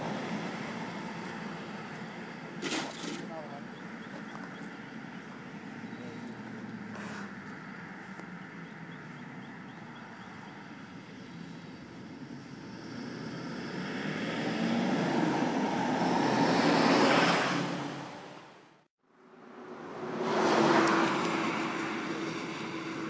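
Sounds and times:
vehicle road noise passing: 0.0 - 23.0.

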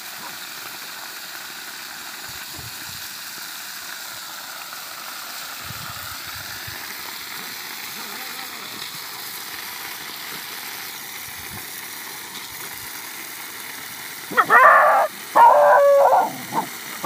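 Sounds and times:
puppy yipping: 14.3 - 16.7
puppy barking: 14.3 - 16.8.

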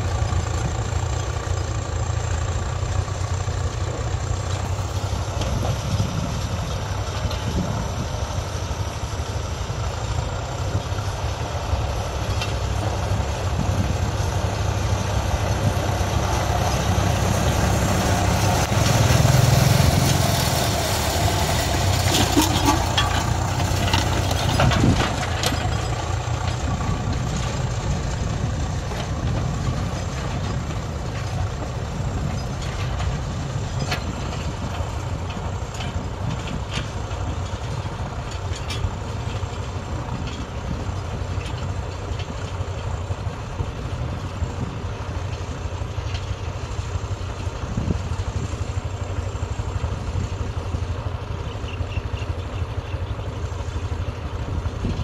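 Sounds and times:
tractor engine running: 0.0 - 55.0
sharp engine knocks: 21.3 - 27.6.

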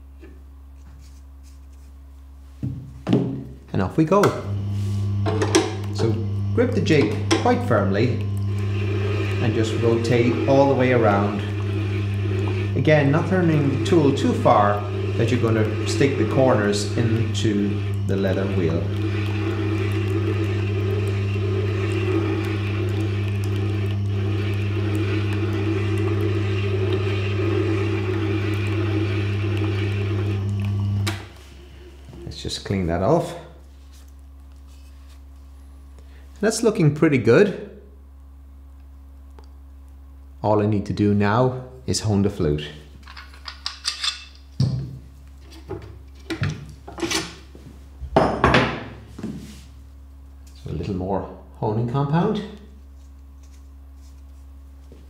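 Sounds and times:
sharpening machine motor hum: 4.2 - 32.4
gouge rolling on honing wheel: 5.2 - 30.7.

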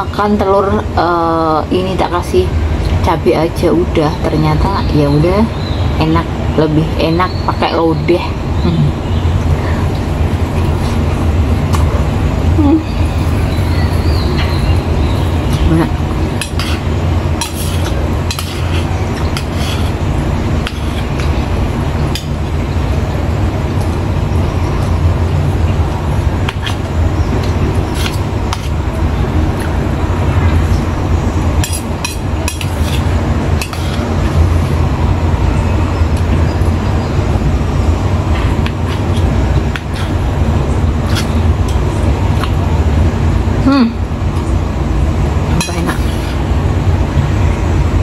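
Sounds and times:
steady low rumble: 0.0 - 48.0
spoon scraping steel bowl: 16.4 - 16.8, 31.6 - 34.1.

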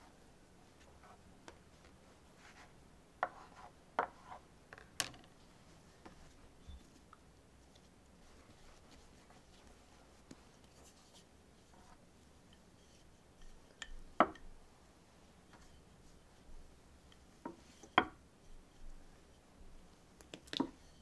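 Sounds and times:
hands rubbing dough: 0.0 - 4.5, 5.5 - 14.2
rolling pin rolling dough: 2.4 - 4.4.

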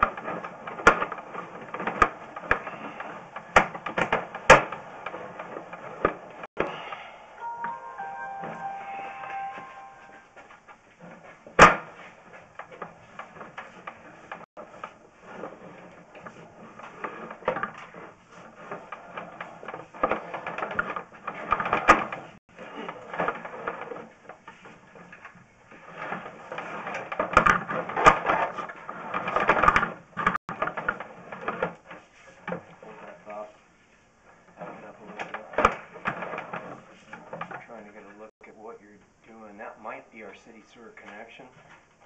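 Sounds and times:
cable rattling and scraping: 0.0 - 6.5, 10.8 - 33.6, 34.2 - 38.3.

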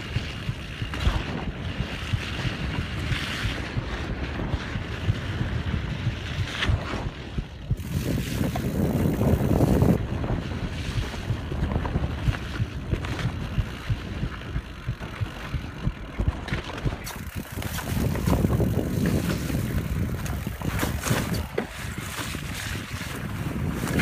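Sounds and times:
rumble of knobby tyres: 0.0 - 24.0
wind buffeting microphone: 0.0 - 24.0
clicks and knocks from bike chain: 11.6 - 24.0.

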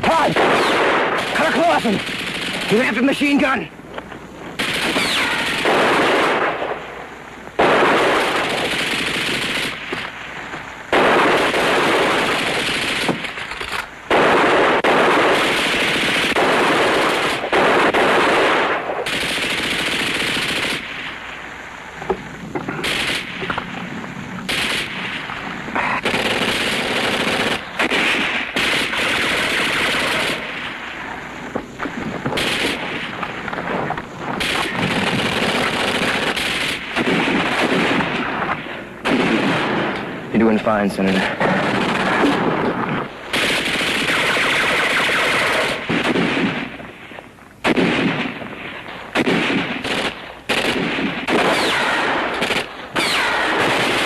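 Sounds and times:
machine-gun fire: 0.0 - 3.6, 4.6 - 6.8, 7.6 - 10.2, 10.9 - 21.1, 22.7 - 23.6, 24.4 - 30.8, 31.8 - 46.8, 47.6 - 54.0.

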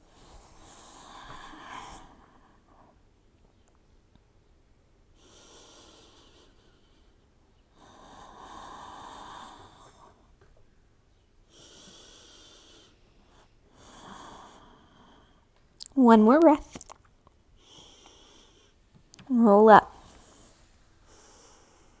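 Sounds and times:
person breathing deeply: 5.2 - 10.2, 11.5 - 15.5, 17.6 - 18.8, 20.0 - 22.0.

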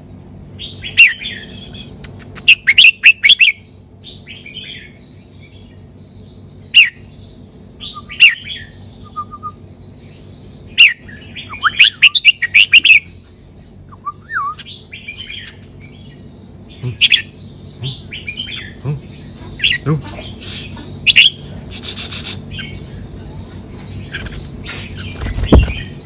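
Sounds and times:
bird singing whistled phrases: 0.8 - 3.4, 9.0 - 9.6, 13.9 - 15.9.

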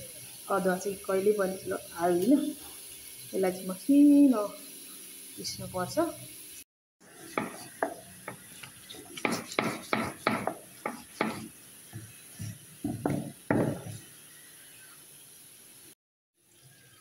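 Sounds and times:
grinding stone knocking and rubbing: 7.2 - 14.0.

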